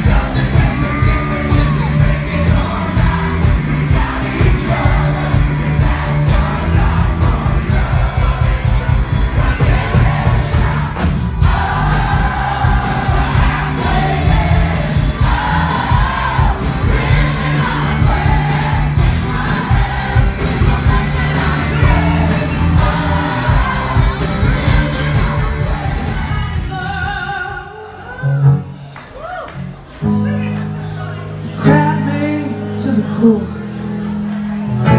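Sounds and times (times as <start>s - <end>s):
person singing: 0.0s - 10.8s, 31.4s - 34.1s
live rock band playing: 0.0s - 29.0s, 29.6s - 34.9s
crowd yelling: 0.0s - 34.9s.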